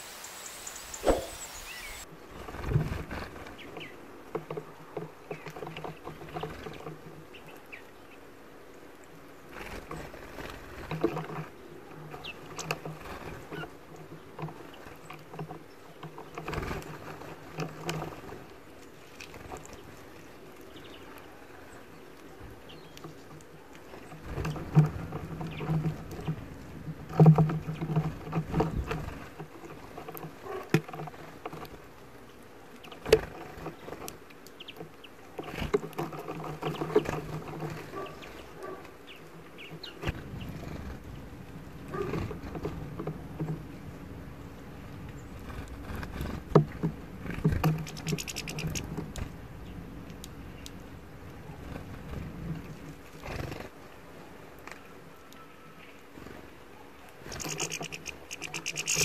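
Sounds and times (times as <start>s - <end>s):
wingbeats and scuffling: 0.0s - 7.5s, 32.7s - 53.8s, 56.2s - 59.0s
bills tapping on seeds and dish: 46.5s - 49.2s, 57.3s - 59.0s.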